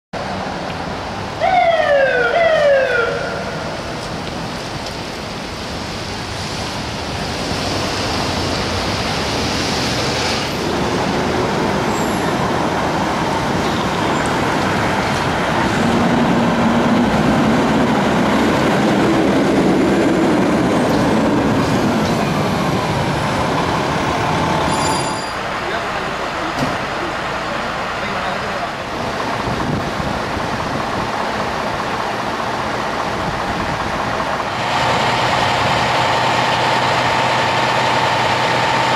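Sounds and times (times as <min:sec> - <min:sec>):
traffic noise: 0:00.1 - 0:38.9
fire engine siren: 0:01.4 - 0:03.8.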